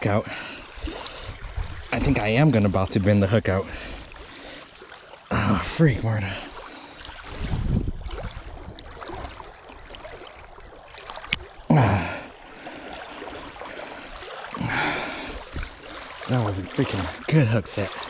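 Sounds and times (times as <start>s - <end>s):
small waves lapping at shore: 0.0s - 18.0s
person gasping: 11.7s - 13.0s, 13.8s - 15.5s.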